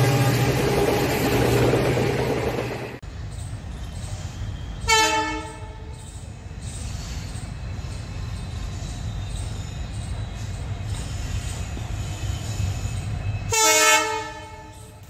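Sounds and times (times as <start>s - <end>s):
outdoor background: 0.0s - 15.0s
train low hum: 0.0s - 15.0s
locomotive air horn blast: 4.9s - 5.8s, 13.5s - 14.9s.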